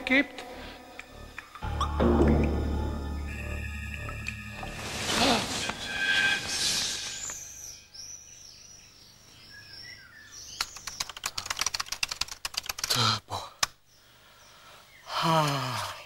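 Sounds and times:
birds chirping faintly: 0:00.0 - 0:12.2, 0:13.0 - 0:16.0
keyboard typing: 0:10.6 - 0:13.0.

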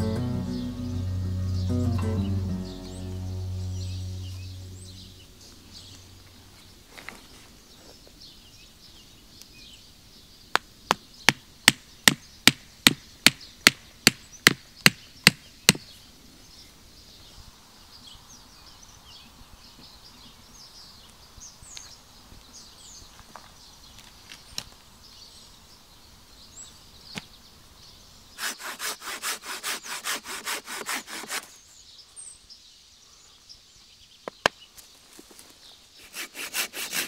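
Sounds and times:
wooden stake hammered into ground: 0:10.9 - 0:15.9.

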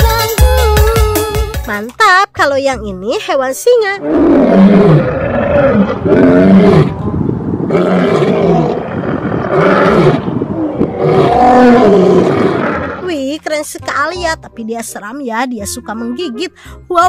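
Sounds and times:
lion roaring: 0:04.0 - 0:13.1.

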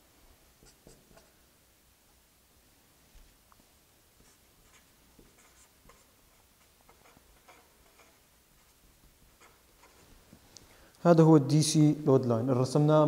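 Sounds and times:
marker scratching on paper: 0:04.2 - 0:10.4.

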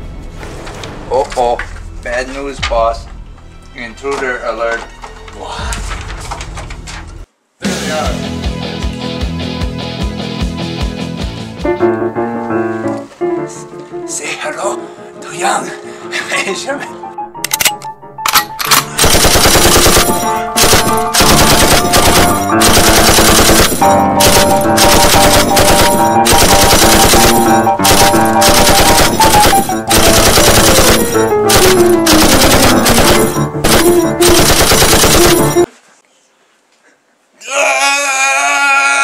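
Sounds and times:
fast-paced soundtrack music: 0:15.4 - 0:35.7.

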